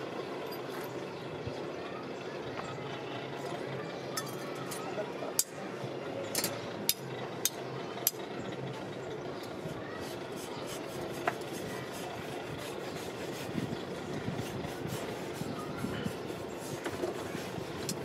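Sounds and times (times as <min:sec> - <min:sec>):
hand tools scraping packed sand: 0:10.0 - 0:18.0.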